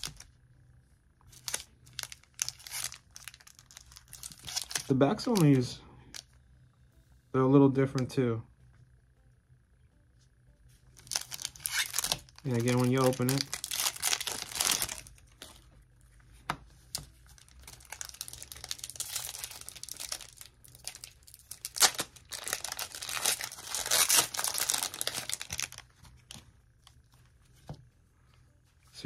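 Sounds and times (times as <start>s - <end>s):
cards being handled: 1.3s - 6.2s, 11.0s - 15.6s
foil wrapper crinkling: 1.3s - 6.2s, 11.0s - 15.6s, 16.9s - 26.3s.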